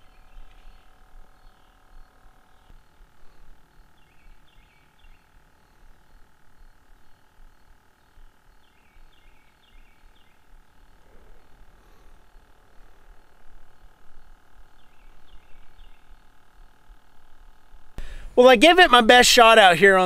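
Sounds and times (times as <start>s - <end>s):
low outdoor rumble: 0.0s - 20.0s.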